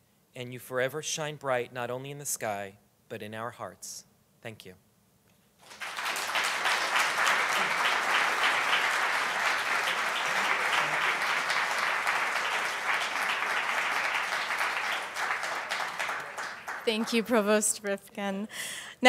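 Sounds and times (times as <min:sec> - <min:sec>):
audience applause: 0:05.6 - 0:17.6.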